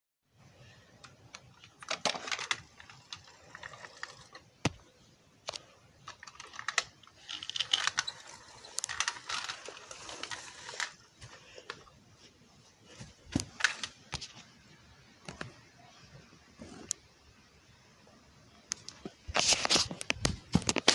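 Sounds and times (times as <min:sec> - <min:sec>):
plastic toy truck rattling: 0:01.0 - 0:04.8, 0:05.5 - 0:11.0.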